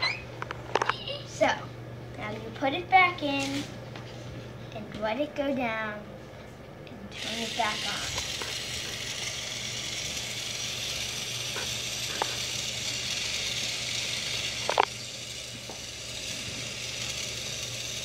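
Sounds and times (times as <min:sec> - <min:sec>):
toy mixer motor whirring: 0:07.1 - 0:18.0.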